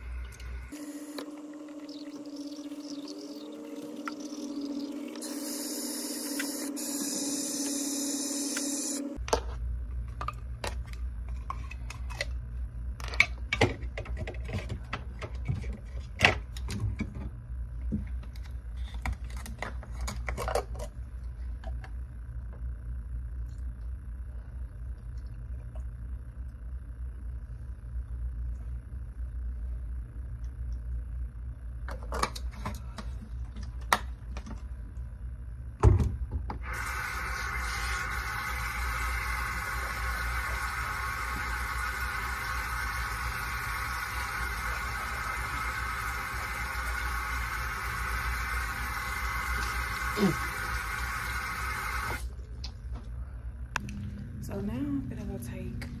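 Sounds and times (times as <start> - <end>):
low steady hum: 0.0 - 56.0
electric toothbrush buzzing: 0.6 - 9.2, 36.7 - 52.2.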